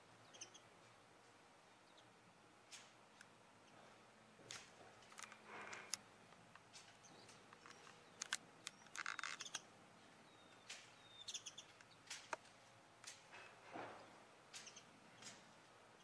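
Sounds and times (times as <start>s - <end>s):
nestlings cheeping: 6.8s - 12.4s.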